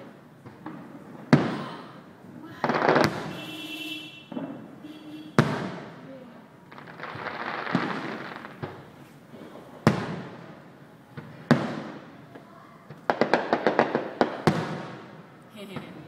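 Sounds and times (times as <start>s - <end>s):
sharp firework cracks: 0.0s - 9.0s, 9.6s - 16.0s
distant firework booms: 2.6s - 6.1s, 6.7s - 8.9s, 9.7s - 12.2s, 12.8s - 16.0s.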